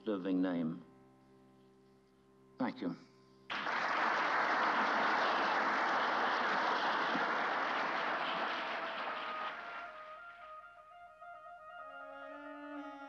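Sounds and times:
faint music: 0.0s - 3.5s
audience applauding: 3.5s - 10.6s.

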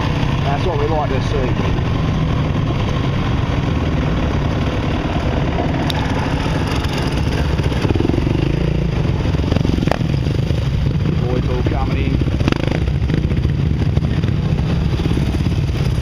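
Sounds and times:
trail bike engine running: 0.0s - 16.0s.

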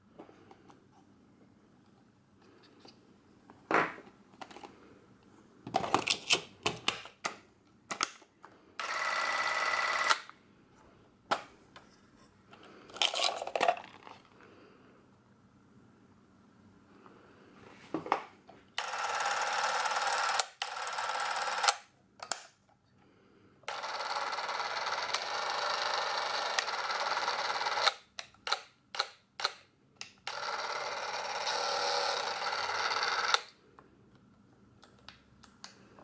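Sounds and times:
film camera motor whirring: 8.8s - 10.3s, 18.8s - 21.8s, 23.7s - 28.0s, 30.3s - 33.5s.

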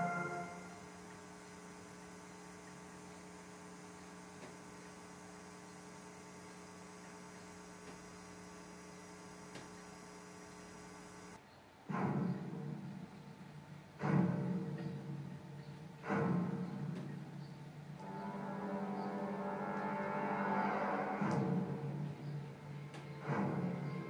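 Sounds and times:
music: 0.0s - 0.8s, 18.0s - 24.0s
electrical mains hum: 0.0s - 24.0s.

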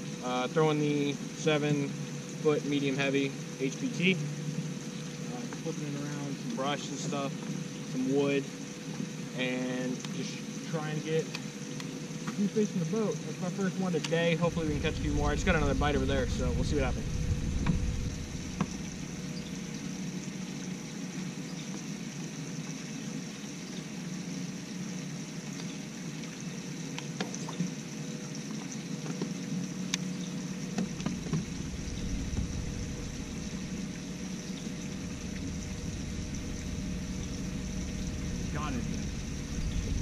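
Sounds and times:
water against boat hull: 9.9s - 40.0s
electric motor humming: 14.2s - 20.0s, 30.6s - 40.0s
low rumble: 14.4s - 19.6s, 30.8s - 40.0s.

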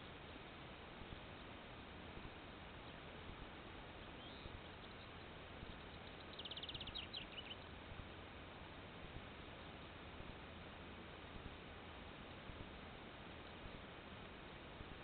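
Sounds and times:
faint steady hiss: 0.0s - 15.0s
small animal chirping trill: 5.9s - 7.6s.

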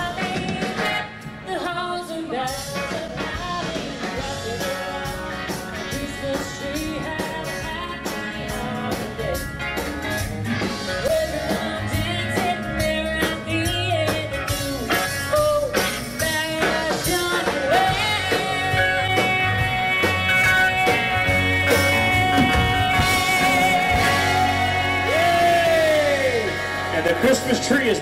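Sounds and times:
person singing: 0.0s - 10.0s, 11.0s - 26.6s
bass guitar: 0.0s - 28.0s
drums: 0.0s - 28.0s
electric guitars: 0.0s - 28.0s.

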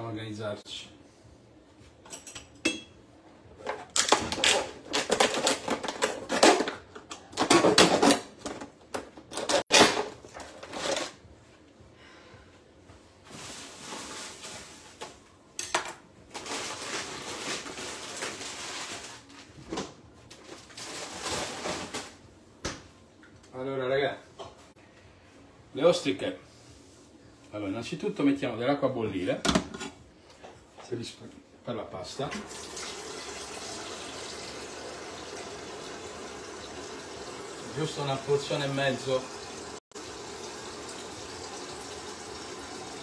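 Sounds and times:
plastic wrapping film crinkling: 16.3s - 19.6s.

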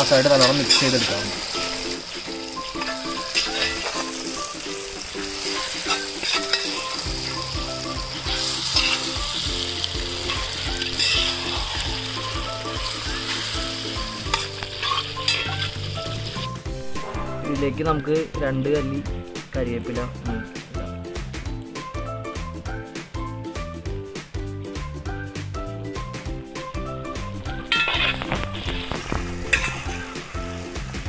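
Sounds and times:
pork sizzling in a metal pot: 0.0s - 18.2s, 26.8s - 31.0s
spatula scraping a pot: 10.3s - 11.9s, 14.3s - 15.8s, 27.6s - 30.2s.

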